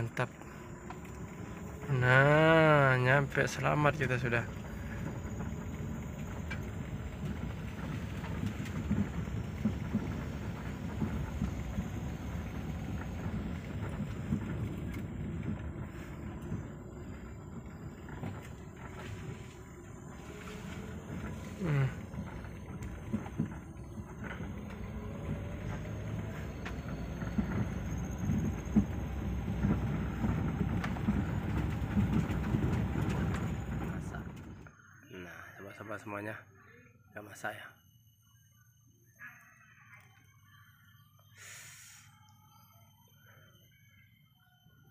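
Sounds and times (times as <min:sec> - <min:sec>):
knocks and rattles from bumpy road: 0:00.0 - 0:34.9
car engine and tyres rumbling: 0:00.0 - 0:36.3.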